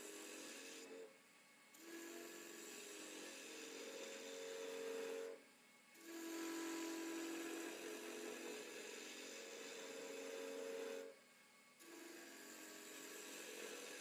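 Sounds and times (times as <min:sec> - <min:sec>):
chisel cutting wood on a lathe: 0:00.0 - 0:01.2, 0:01.8 - 0:05.4, 0:06.0 - 0:11.2, 0:11.8 - 0:14.0.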